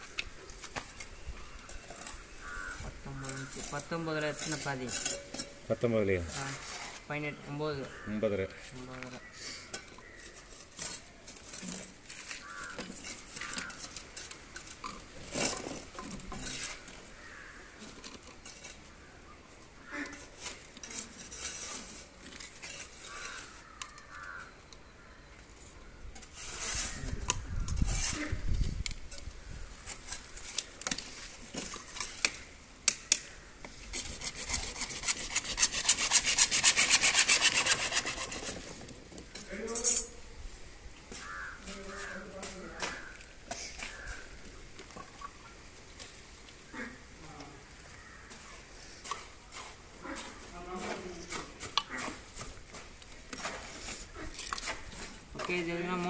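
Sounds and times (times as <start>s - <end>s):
hacksaw cutting plastic pipe: 33.9s - 38.7s.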